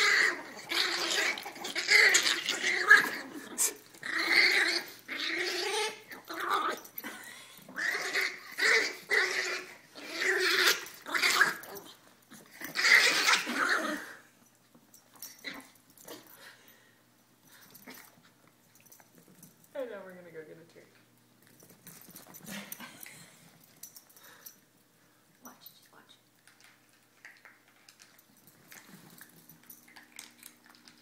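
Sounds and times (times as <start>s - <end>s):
small dogs growling: 0.0s - 14.3s.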